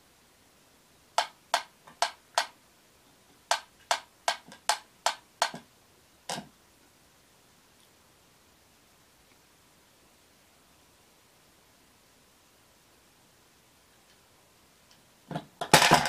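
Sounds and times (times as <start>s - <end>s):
metronome ticking: 3.5s - 5.6s.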